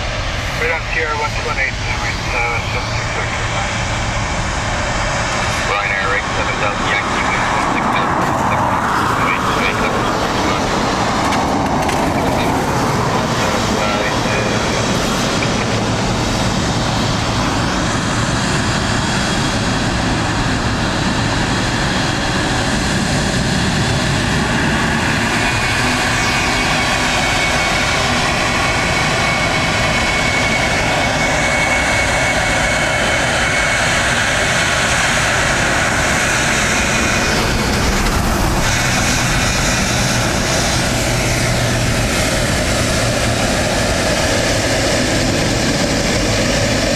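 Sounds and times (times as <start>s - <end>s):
jet engine whine: 0.0s - 46.9s
jet engines taxiing: 0.0s - 46.9s.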